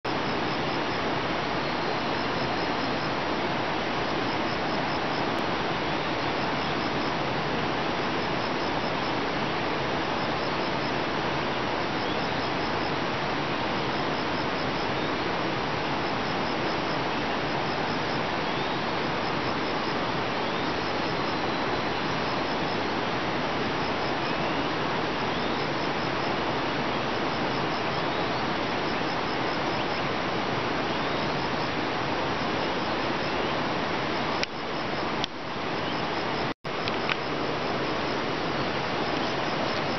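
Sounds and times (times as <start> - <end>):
faint high ticks: 34.4 - 34.6, 36.8 - 37.3.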